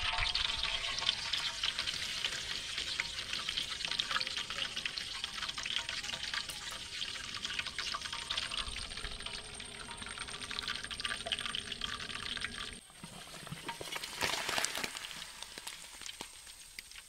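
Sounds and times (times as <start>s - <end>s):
fish deep-frying in oil: 0.0s - 17.0s.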